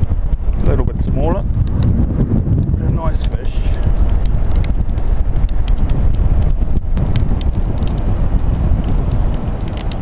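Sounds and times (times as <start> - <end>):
wind rumbling on microphone: 0.0 - 10.0
sharp irregular clicks: 2.6 - 10.0.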